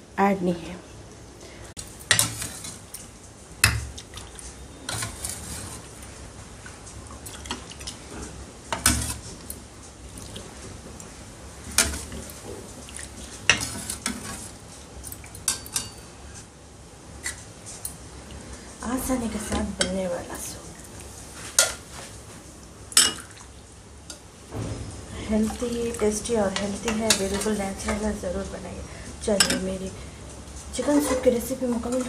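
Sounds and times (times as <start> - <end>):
ladle clinking on pan and bowl: 15.4 - 16.1, 29.4 - 29.7.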